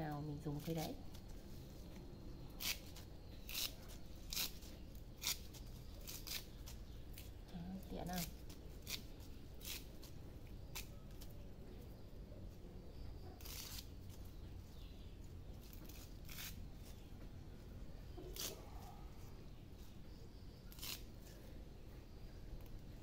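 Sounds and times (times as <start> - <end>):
low background hum: 0.0 - 23.0
leaves rustling and snapping: 2.6 - 11.4, 18.3 - 18.7.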